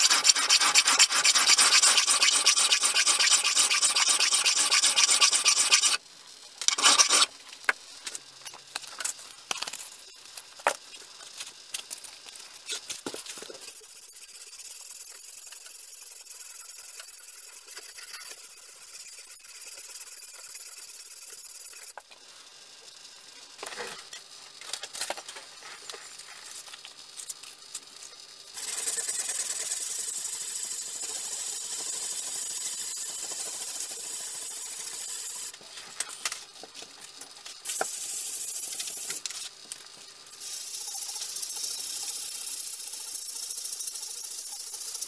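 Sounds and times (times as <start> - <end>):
sandpaper scraping metal: 0.0 - 6.0, 6.7 - 7.3, 13.6 - 21.9, 28.6 - 35.5.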